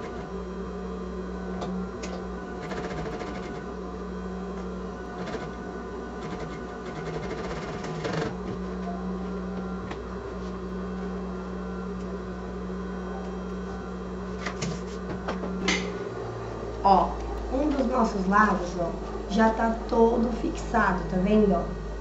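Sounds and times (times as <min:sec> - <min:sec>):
sewing machine running: 0:01.9 - 0:03.8, 0:05.0 - 0:05.6, 0:06.2 - 0:08.5.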